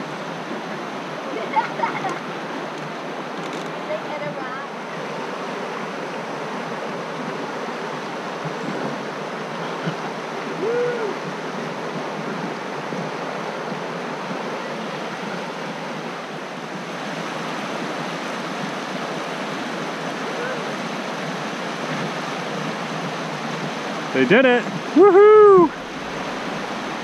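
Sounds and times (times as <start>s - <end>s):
river rushing over rocks: 0.0s - 27.0s
hoot-like call: 10.5s - 11.2s.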